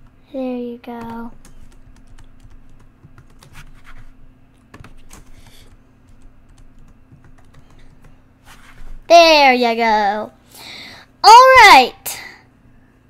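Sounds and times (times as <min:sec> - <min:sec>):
faint steady hum: 0:00.0 - 0:13.0
keyboard typing: 0:01.0 - 0:08.2.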